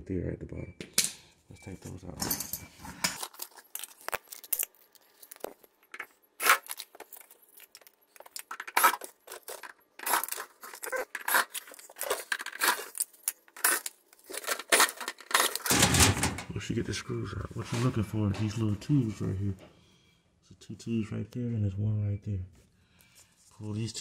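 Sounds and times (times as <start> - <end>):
sheet-metal panel rattling: 15.7 - 16.5.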